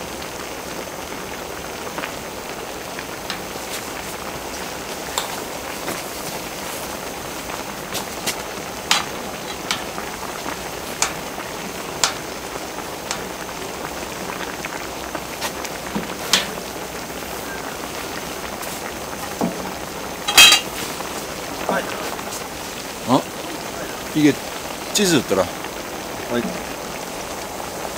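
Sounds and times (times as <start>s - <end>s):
stew boiling and bubbling: 0.0s - 27.9s
sharp clatter: 20.3s - 20.8s.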